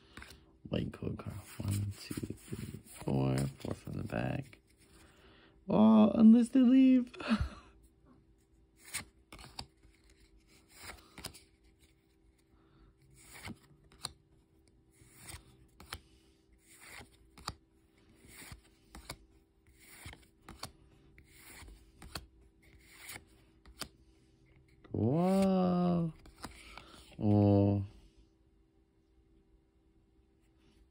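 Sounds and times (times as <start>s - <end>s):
trading cards sliding: 1.3s - 5.1s, 8.8s - 12.4s, 13.2s - 14.2s, 14.9s - 16.0s, 16.6s - 24.0s, 24.6s - 25.5s.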